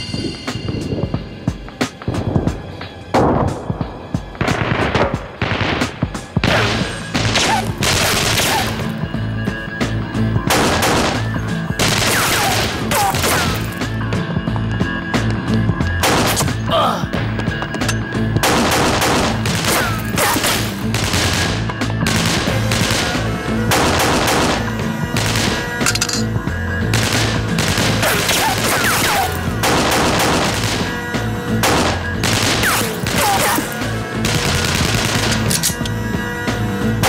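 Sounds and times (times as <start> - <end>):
dramatic music score: 0.0 - 37.0
pistol gunfire: 4.4 - 8.8, 10.5 - 13.6, 16.0 - 16.5, 18.4 - 26.0, 26.9 - 31.0, 31.6 - 35.8.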